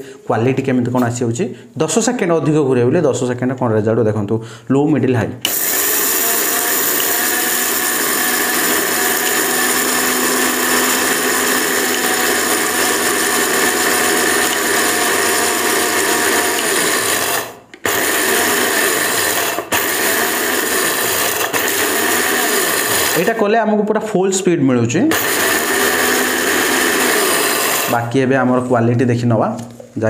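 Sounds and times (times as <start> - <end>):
mixer grinder grinding rice: 5.5 - 23.4, 25.1 - 28.1.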